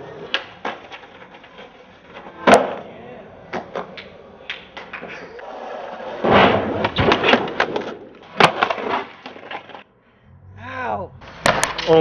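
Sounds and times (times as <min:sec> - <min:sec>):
skateboard deck clacking: 0:00.0 - 0:02.9, 0:03.5 - 0:09.8
skateboard wheels rolling: 0:00.0 - 0:09.9
sharp crack: 0:11.3 - 0:12.0.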